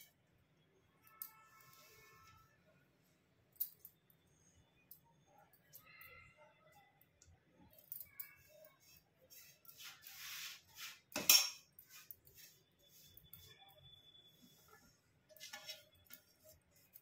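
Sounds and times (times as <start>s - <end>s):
dishes clinking and scraping: 11.1s - 11.8s, 14.7s - 17.0s
dishes clattering: 11.2s - 11.7s.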